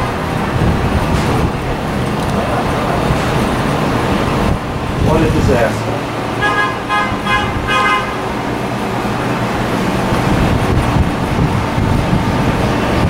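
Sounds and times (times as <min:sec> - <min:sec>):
train rumbling on tracks: 0:00.0 - 0:13.0
subway train horn blasts: 0:06.0 - 0:09.8.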